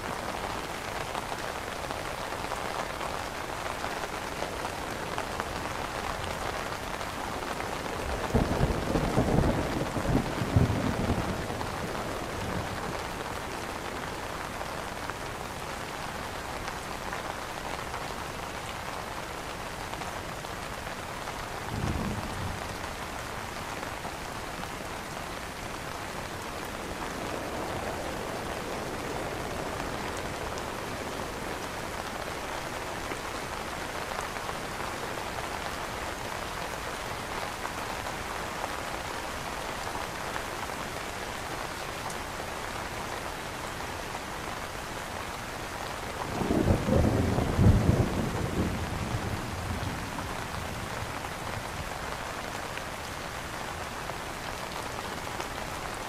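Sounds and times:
rain pattering on umbrella: 0:00.0 - 0:56.0.

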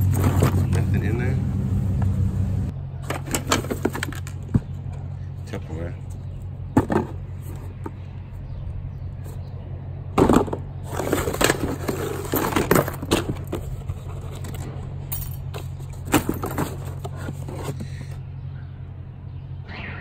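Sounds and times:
steady low hum: 0:00.0 - 0:03.0
plastic items handled in a box: 0:10.2 - 0:14.7, 0:15.5 - 0:18.2.

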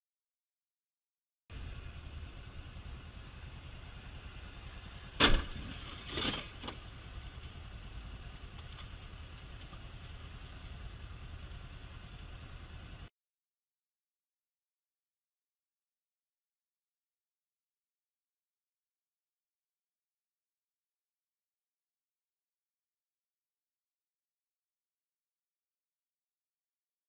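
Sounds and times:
vehicle engine and road rumble: 0:01.5 - 0:13.1
loud collision bang: 0:05.2 - 0:06.5.

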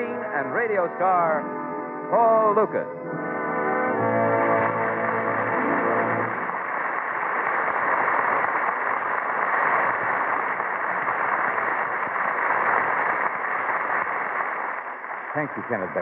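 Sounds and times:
studio audience applauding: 0:03.8 - 0:16.0.

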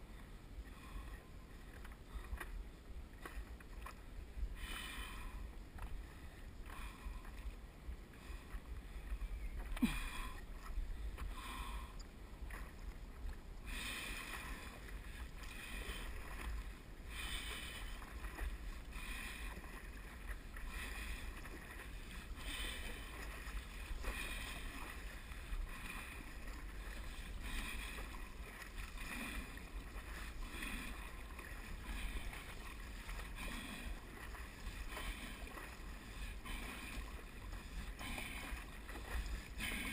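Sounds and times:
paddle splashing through water: 0:00.6 - 0:39.9.

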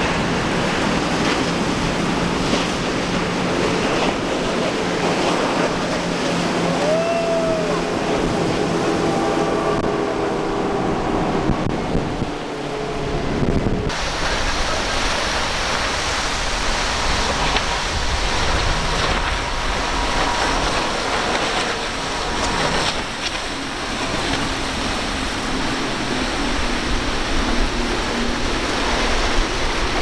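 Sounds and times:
low boat engine drone: 0:00.0 - 0:30.0
spray and breaking waves: 0:00.0 - 0:30.0.

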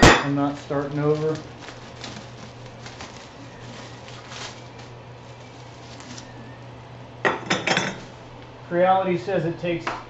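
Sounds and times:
steady low hum: 0:00.0 - 0:10.0
faint handling noise: 0:00.3 - 0:06.5.

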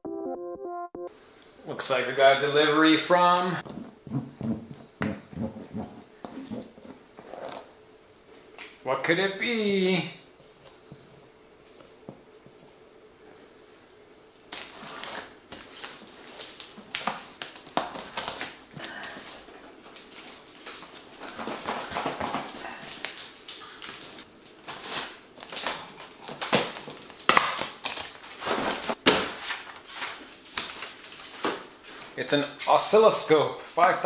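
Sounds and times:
packing tape and cardboard ripping: 0:14.5 - 0:31.6.

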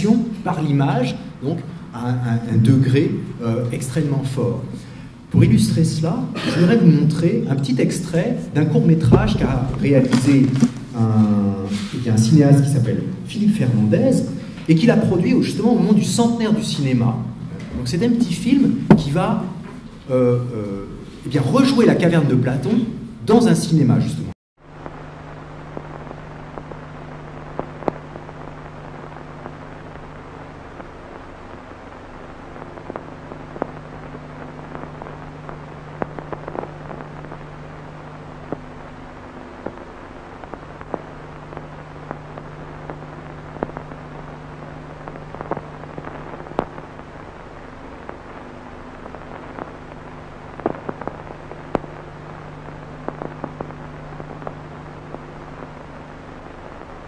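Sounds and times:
low hum: 0:00.0 - 0:21.1, 0:24.6 - 0:57.0
crackles and pops: 0:00.0 - 0:23.6, 0:24.6 - 0:57.0
film hiss: 0:00.0 - 0:57.0.

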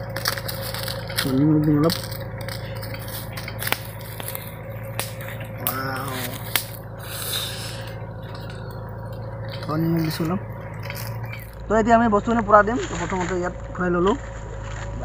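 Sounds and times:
crinkly plastic packet rustling: 0:00.0 - 0:06.9
steady low hum: 0:00.0 - 0:15.0.

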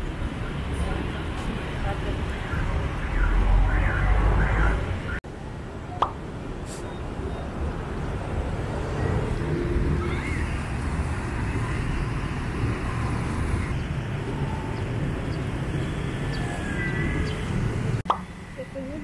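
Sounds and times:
motorbikes and cars passing: 0:07.0 - 0:19.0.

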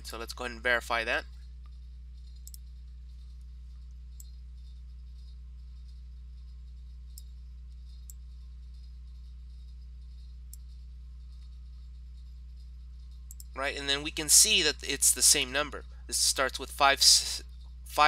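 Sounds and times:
low electrical hum: 0:00.0 - 0:18.0
computer mouse clicks: 0:02.4 - 0:02.6.

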